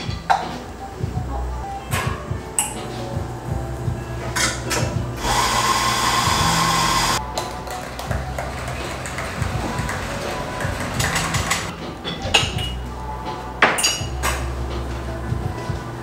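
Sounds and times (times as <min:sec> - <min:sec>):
coffee grinder motor whine: 0:05.2 - 0:07.2
barista tools clicking and knocking: 0:07.4 - 0:12.8.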